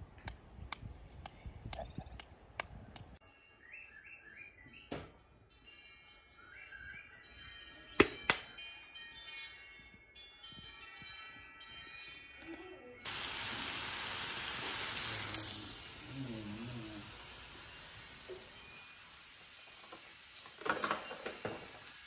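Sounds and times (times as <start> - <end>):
loud steady hiss: 13.1 - 22.0
soft ringing chime tones: 17.8 - 20.1.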